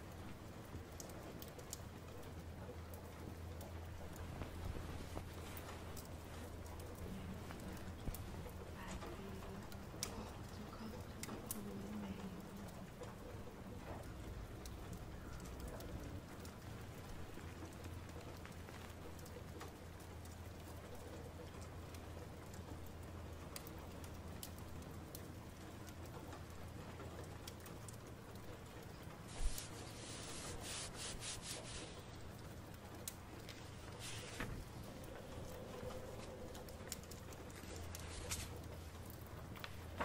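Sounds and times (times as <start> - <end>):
faint clicks: 0.0 - 40.0
low steady hum: 0.0 - 40.0
rustling: 0.6 - 10.8, 28.4 - 40.0.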